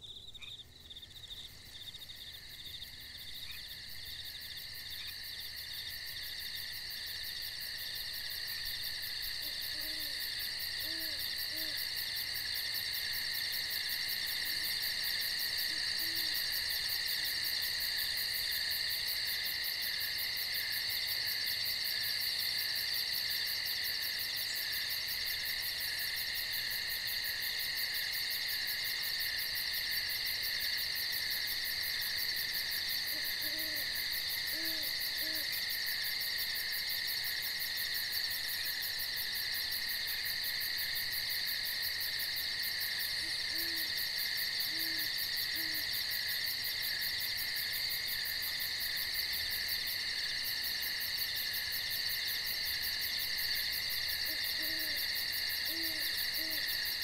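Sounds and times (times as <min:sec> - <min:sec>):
night insects trilling: 0:00.0 - 0:57.0
owl hooting: 0:09.4 - 0:10.2, 0:10.8 - 0:11.8, 0:15.7 - 0:16.4, 0:33.1 - 0:35.5, 0:43.2 - 0:43.9, 0:44.7 - 0:45.8, 0:54.3 - 0:55.0, 0:55.6 - 0:56.6.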